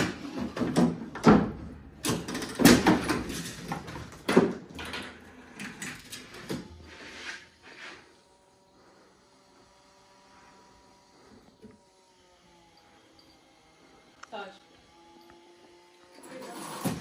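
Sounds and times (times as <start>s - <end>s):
wooden and plastic parts clattering: 0.0s - 6.7s.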